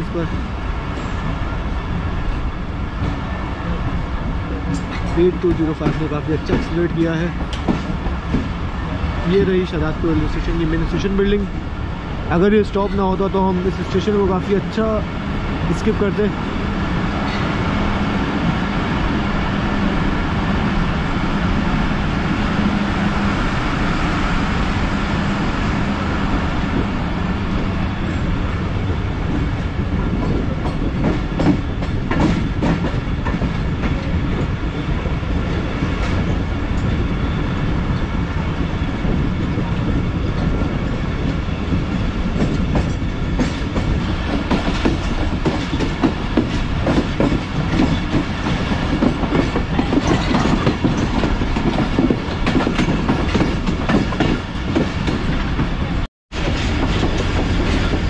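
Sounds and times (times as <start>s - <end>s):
train wheels rumbling on rails: 0.0s - 58.0s
wheels clicking over rail joints: 42.4s - 55.4s.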